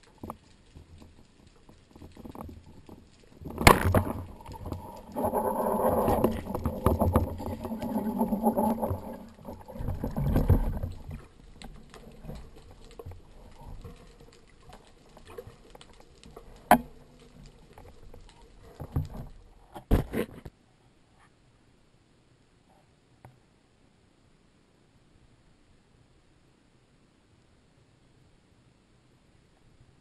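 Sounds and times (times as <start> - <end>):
underwater rumble and clatter: 0.0 - 20.4
sharp knocks underwater: 3.4 - 10.9, 16.6 - 17.0.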